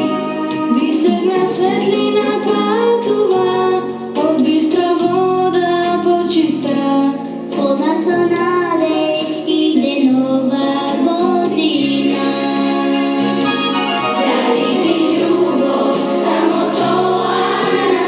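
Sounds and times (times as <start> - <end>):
instrumental backing music: 0.0 - 18.0
children singing: 14.1 - 18.0.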